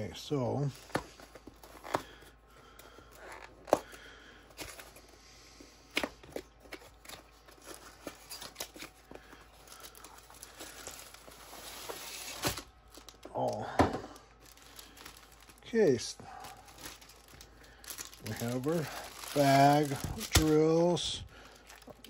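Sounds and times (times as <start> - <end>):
rustling contents: 0.7 - 22.0.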